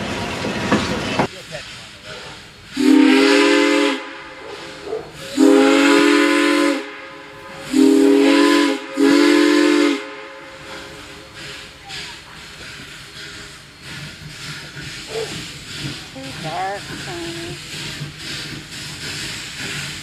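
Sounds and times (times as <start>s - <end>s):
faint steam hiss: 1.2s - 20.0s
steam locomotive chime whistle: 2.8s - 11.0s.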